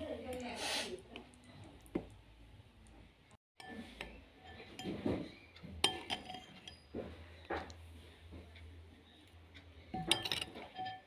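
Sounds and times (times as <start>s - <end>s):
spoon clinking against bowl: 5.8s - 6.9s, 10.0s - 11.0s.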